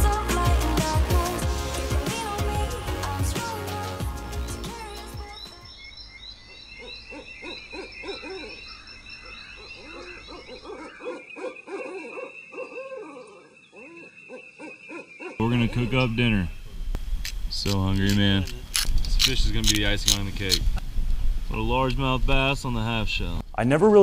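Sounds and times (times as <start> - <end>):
music: 0.0 - 5.7
hooting animal calls: 6.4 - 16.8.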